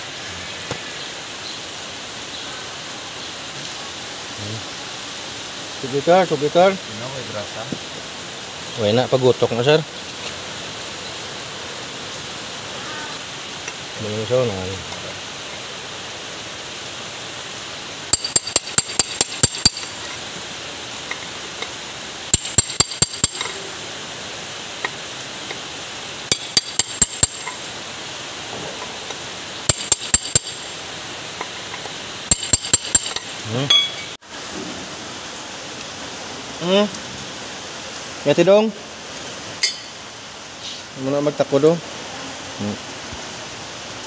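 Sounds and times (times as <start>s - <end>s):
hammer tapping metal: 18.1s - 20.3s, 22.3s - 23.7s, 26.3s - 27.7s, 28.8s - 30.8s, 31.4s - 34.2s, 39.6s - 40.0s.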